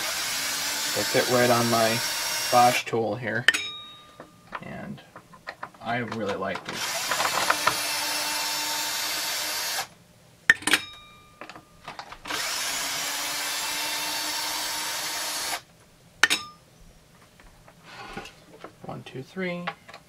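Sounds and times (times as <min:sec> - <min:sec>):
cordless drill whining: 0:00.0 - 0:02.8, 0:06.7 - 0:09.9, 0:12.2 - 0:15.7
ringing metallic clink: 0:03.5 - 0:04.6, 0:10.5 - 0:11.8, 0:16.2 - 0:16.7.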